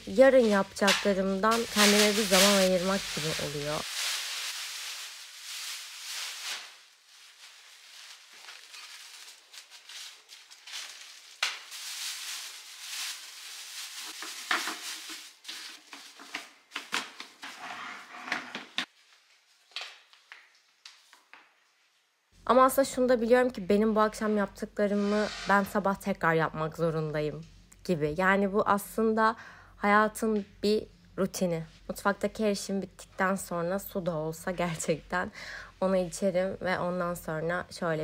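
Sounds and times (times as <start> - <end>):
plastic bin bags rustling: 0.0 - 17.4.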